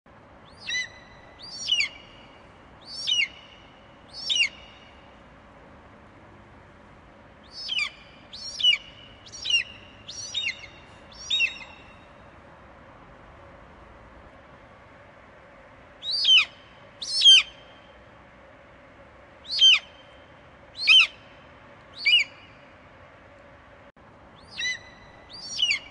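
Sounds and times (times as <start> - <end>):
faint steady hiss: 0.1 - 25.9
eagle calling: 0.5 - 2.2, 2.9 - 3.6, 4.2 - 5.0, 7.5 - 12.0, 16.0 - 17.6, 19.4 - 20.0, 20.8 - 21.2, 22.0 - 22.6, 24.4 - 25.9.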